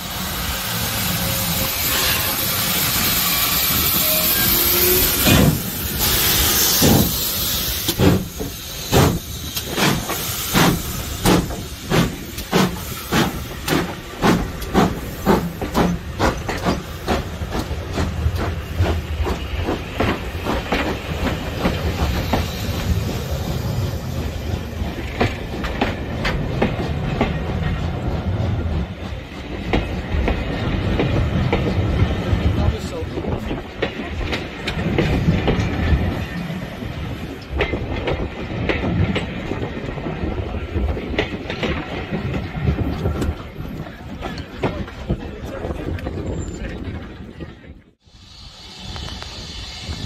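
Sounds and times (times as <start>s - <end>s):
steam locomotive exhaust beats: 0.0s - 32.6s, 47.9s - 50.0s
coaches rumbling and clacking: 40.7s - 48.0s.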